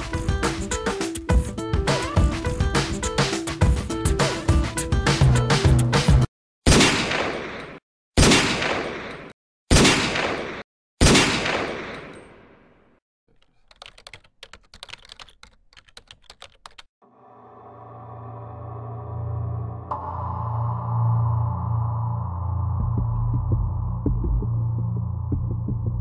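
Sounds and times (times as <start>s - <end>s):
typing clicks: 13.3s - 16.9s
low drone: 17.0s - 26.0s.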